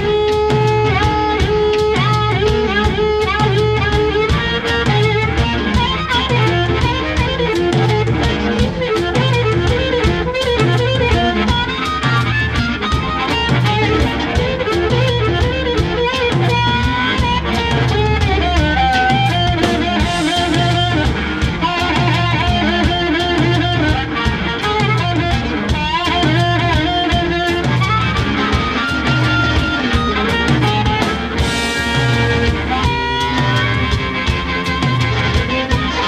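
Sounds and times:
amplified harmonica: 0.0s - 36.0s
drum kit groove: 0.0s - 36.0s
electric guitar: 0.0s - 36.0s.

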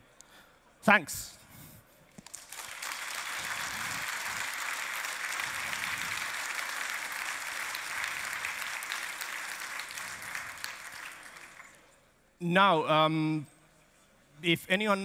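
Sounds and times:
audience applauding: 2.3s - 11.8s.

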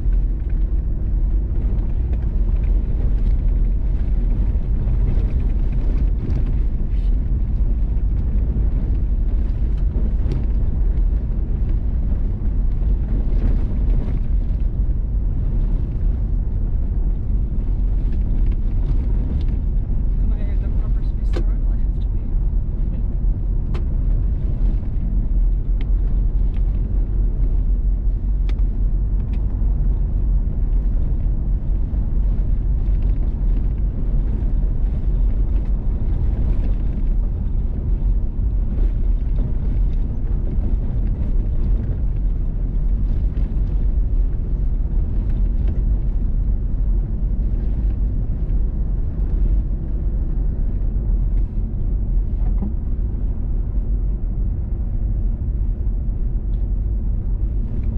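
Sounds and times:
vehicle driving on gravel: 0.0s - 57.9s.

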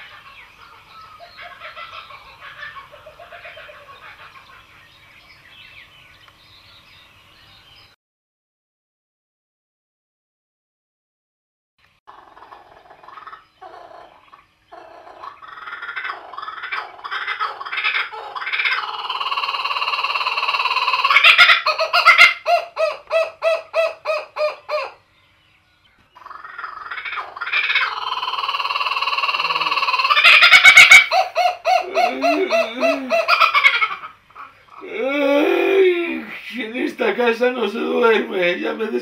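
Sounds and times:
kookaburra laughing call: 0.0s - 4.9s, 12.1s - 25.0s, 26.2s - 36.7s.

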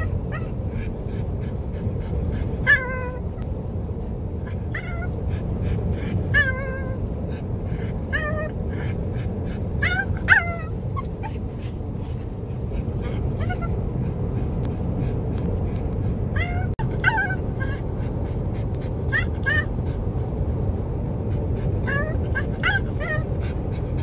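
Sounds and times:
dog whining in high yips: 0.0s - 0.6s, 2.6s - 3.4s, 4.4s - 5.2s, 9.8s - 11.5s, 16.4s - 17.8s, 19.1s - 19.8s, 21.8s - 23.4s
car cabin road rumble: 0.0s - 24.0s.

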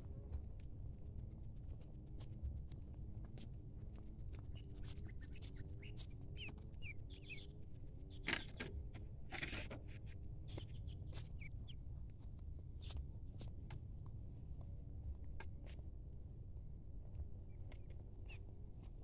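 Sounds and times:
scratchy rustles: 9.3s - 11.5s.

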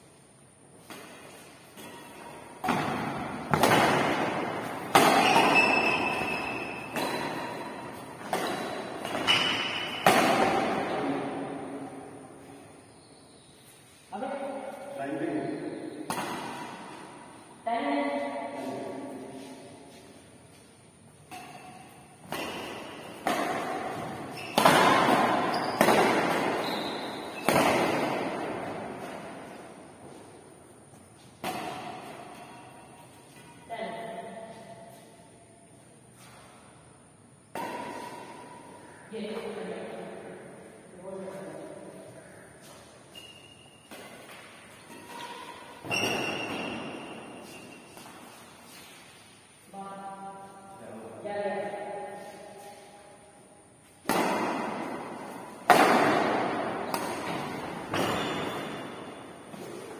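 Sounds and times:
racket hitting shuttlecock: 0.8s - 12.6s, 16.0s - 17.4s, 21.2s - 35.2s, 37.4s - 40.3s, 42.6s - 49.2s, 53.8s - 59.9s.

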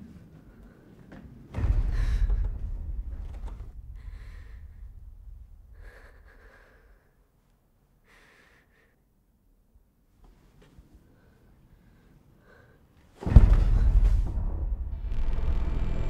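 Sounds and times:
deep low rumble: 1.6s - 6.4s, 13.2s - 16.0s
woman breathing in fear: 3.9s - 7.4s, 8.0s - 9.1s.

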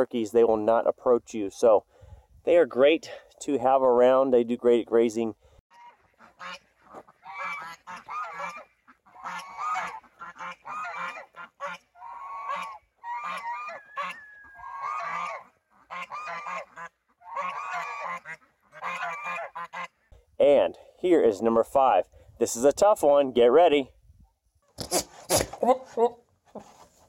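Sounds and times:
geese honking: 5.7s - 20.1s.

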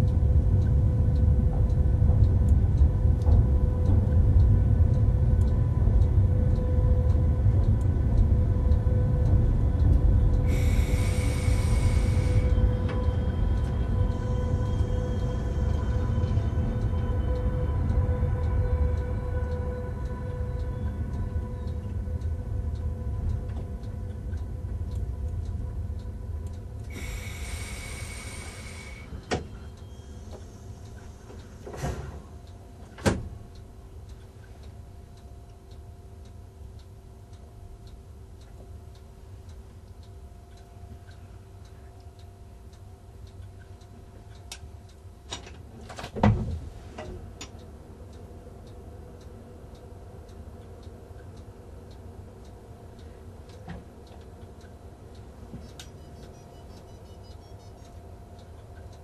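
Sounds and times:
train rumbling past: 0.0s - 35.0s
brief hiss: 10.5s - 12.5s.

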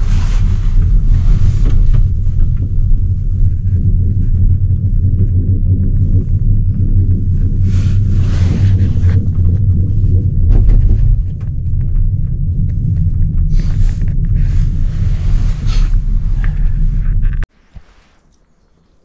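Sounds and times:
gondola lift cabin rumbling: 0.0s - 17.5s.

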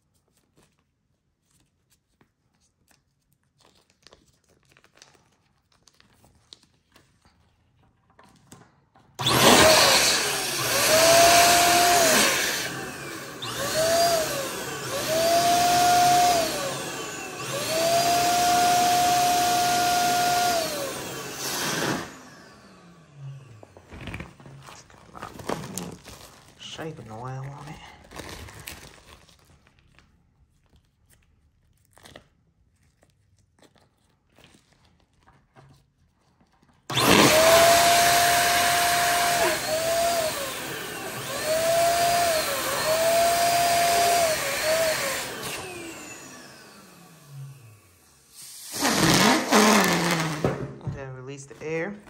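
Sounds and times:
electric balloon pump whining: 9.2s - 24.7s, 36.9s - 51.6s.

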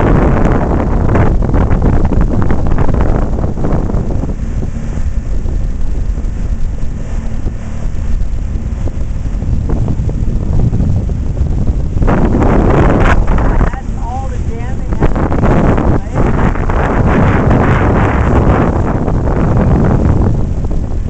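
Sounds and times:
outboard motor humming: 0.0s - 21.0s
wind buffeting microphone: 0.0s - 21.0s.

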